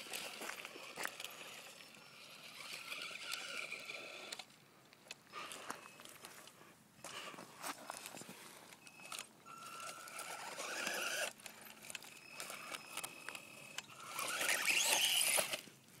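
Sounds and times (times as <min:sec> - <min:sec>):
electric motor whining: 0:00.3 - 0:04.4, 0:09.1 - 0:15.6
tyres scrabbling over dirt: 0:14.1 - 0:15.6.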